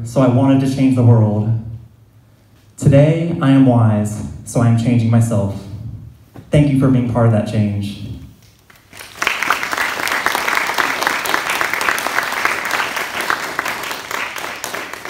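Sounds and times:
audience applauding: 8.7 - 15.0.

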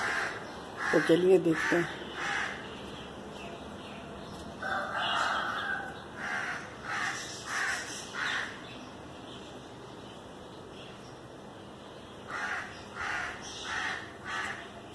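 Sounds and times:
crows cawing: 0.0 - 2.7, 4.6 - 8.6, 12.3 - 14.7.

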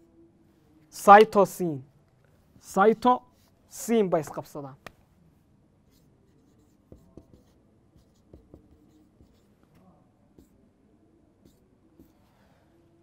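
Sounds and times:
marker writing on whiteboard: 2.3 - 5.0, 5.8 - 12.7
marker tapping: 5.9 - 9.5.

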